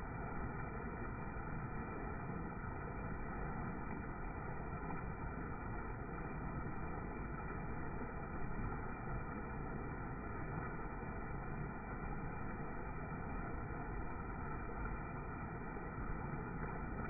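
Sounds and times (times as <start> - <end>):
flood water rushing over rocks: 0.0 - 17.0.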